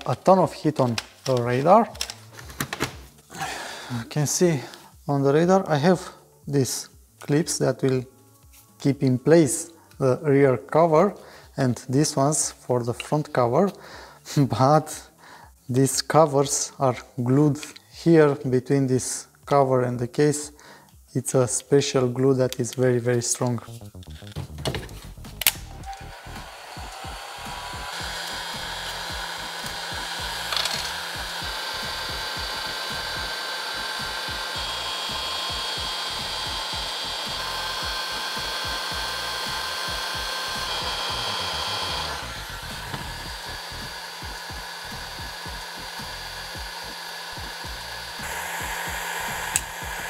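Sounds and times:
heat gun blowing: 3.2s - 6.1s, 25.0s - 50.0s.

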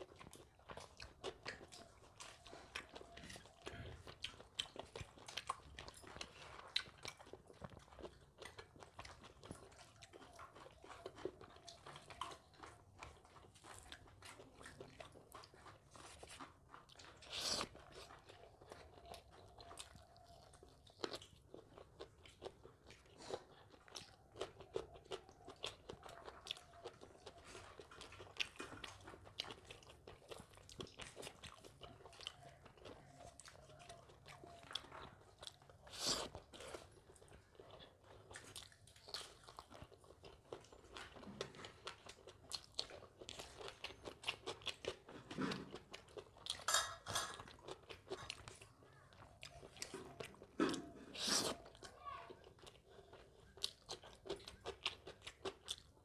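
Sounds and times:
person chewing crunchy food: 0.0s - 56.0s.

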